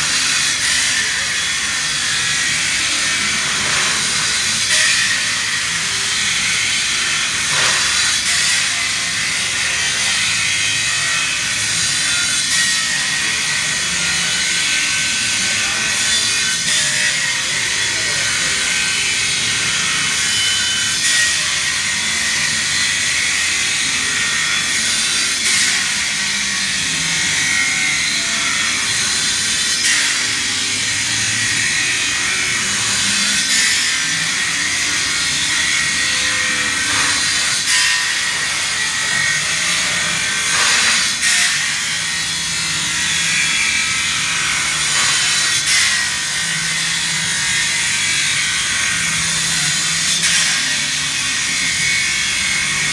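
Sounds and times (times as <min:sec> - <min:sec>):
abrasive saw grinding steel: 0:00.0 - 0:52.9.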